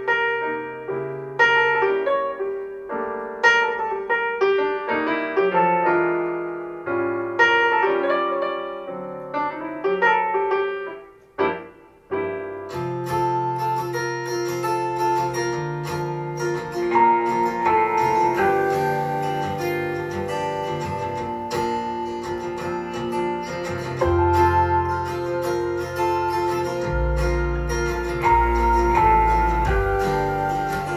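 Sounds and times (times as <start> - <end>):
piano: 0.0 - 30.9
band with bass and cymbals: 26.7 - 30.9.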